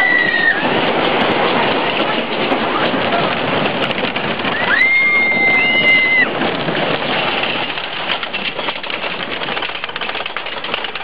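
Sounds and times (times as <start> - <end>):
rider screaming: 0.0 - 0.7, 4.5 - 6.3
roller coaster rattling on track: 0.0 - 11.0.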